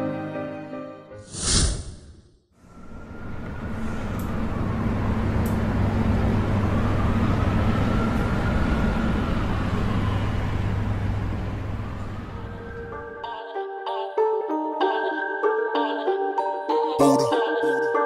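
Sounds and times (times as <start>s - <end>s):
vehicle engine humming: 2.6s - 13.0s
road noise: 2.6s - 13.1s.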